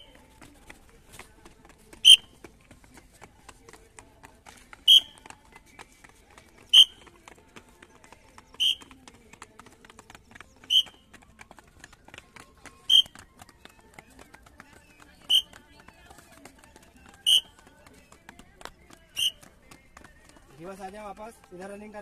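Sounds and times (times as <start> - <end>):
footfalls on concrete steps: 0.0 - 22.0
whistle blasts: 2.0 - 2.3, 4.9 - 5.2, 6.7 - 7.0, 8.6 - 8.8, 10.7 - 11.0, 12.9 - 13.2, 15.3 - 15.5, 17.2 - 17.5, 19.2 - 19.4.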